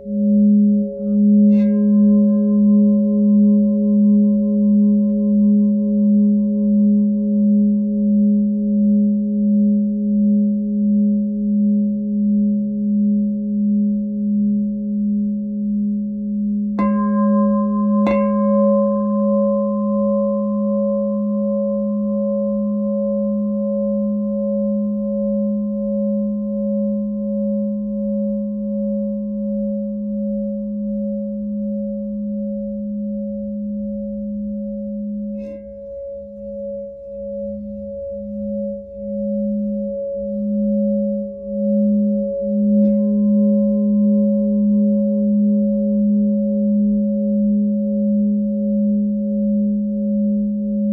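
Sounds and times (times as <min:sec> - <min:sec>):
singing bowl being struck: 0:00.0 - 0:05.5, 0:16.8 - 0:22.2
singing bowl ringing: 0:00.0 - 0:11.0, 0:16.8 - 0:50.9.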